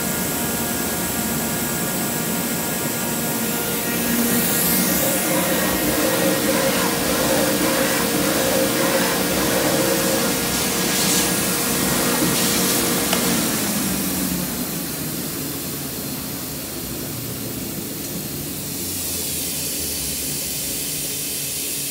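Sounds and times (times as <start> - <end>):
machine hum: 0.0 - 19.2
disc grinder hiss and whir: 2.2 - 15.4.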